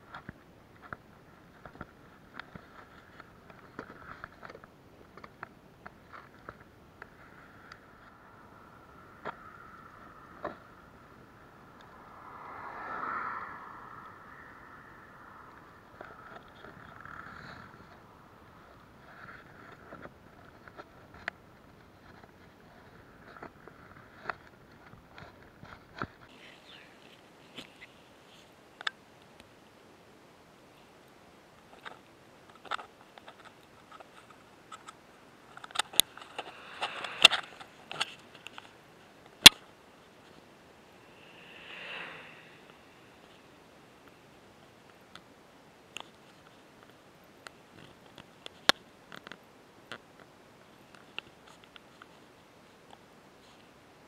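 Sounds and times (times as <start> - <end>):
car tyre noise: 5.2 - 24.3, 33.8 - 44.2.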